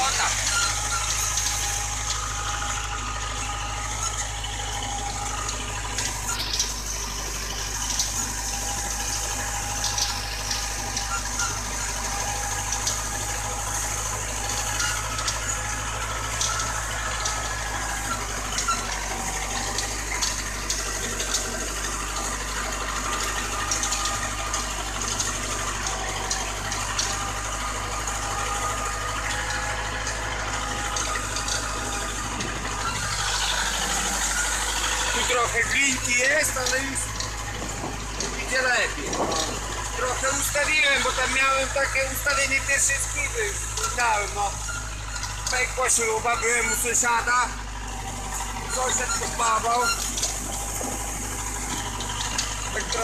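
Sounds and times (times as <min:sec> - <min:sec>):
tractor diesel engine under load: 0:00.0 - 0:53.0.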